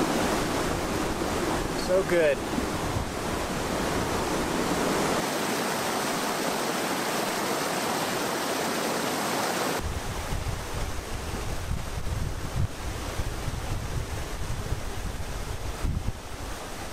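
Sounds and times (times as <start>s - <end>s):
wind rumbling on microphone: 0.0s - 5.3s, 9.8s - 16.9s
mountain stream rushing: 0.0s - 16.9s.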